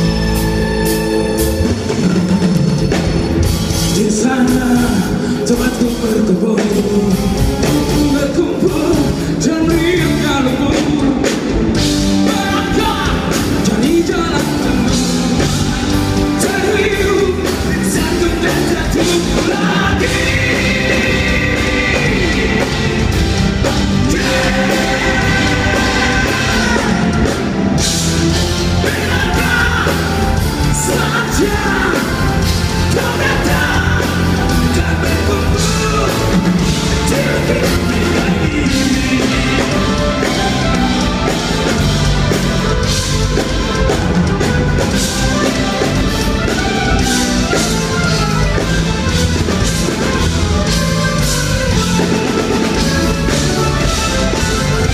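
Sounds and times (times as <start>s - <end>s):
live rock band playing: 0.0s - 54.9s
person singing: 3.9s - 41.8s.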